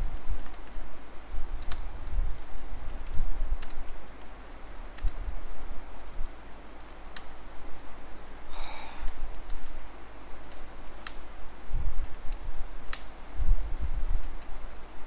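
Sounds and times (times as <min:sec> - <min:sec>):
steady low hum: 0:00.0 - 0:15.0
short breath: 0:08.5 - 0:09.2.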